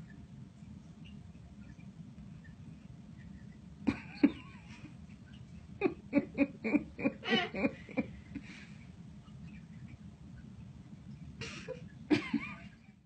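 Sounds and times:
person laughing: 3.9 - 4.9, 5.8 - 8.5, 11.4 - 12.8.

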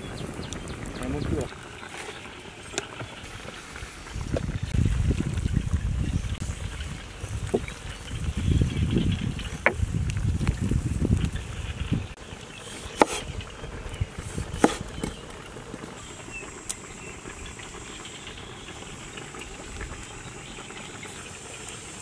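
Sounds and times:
outdoor hiss: 0.0 - 22.0
cleaver chopping on cutting board: 12.9 - 13.3, 14.6 - 15.2.

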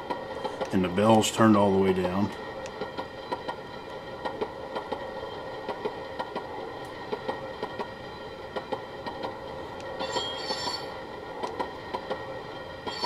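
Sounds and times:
high flange squeal: 10.0 - 11.0.

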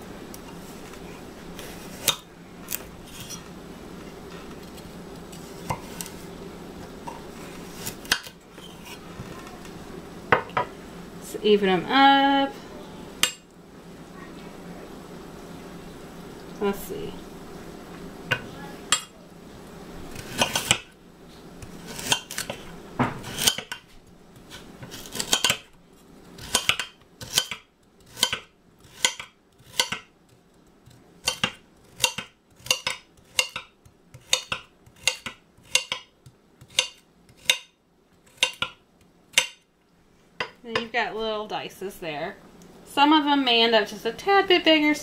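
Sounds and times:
knife chopping carrots: 21.9 - 23.8, 24.4 - 25.7, 26.4 - 30.1, 30.9 - 37.7, 38.3 - 39.6.

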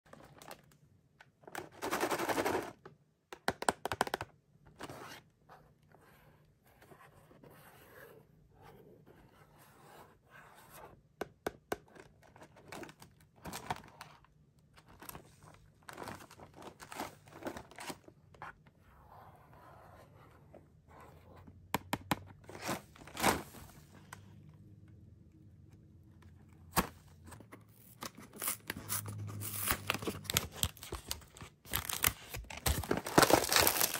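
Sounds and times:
plastic wrappers crinkling: 29.8 - 33.9.

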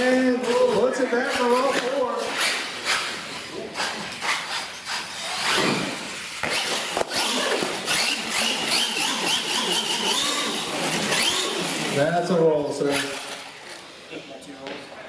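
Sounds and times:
toy truck tumbling on concrete: 0.0 - 12.0
electric motor whining: 5.2 - 12.0.

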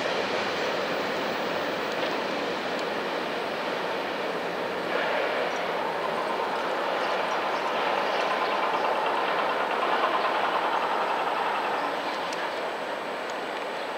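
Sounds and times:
train wheels on rails: 0.0 - 13.9
faint clicks: 1.9 - 2.9, 12.1 - 12.6.

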